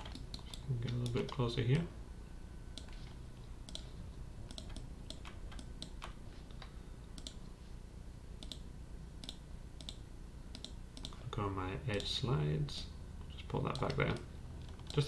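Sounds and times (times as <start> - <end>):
faint low hum: 0.0 - 15.0
mouse and keyboard clicks: 4.5 - 7.4.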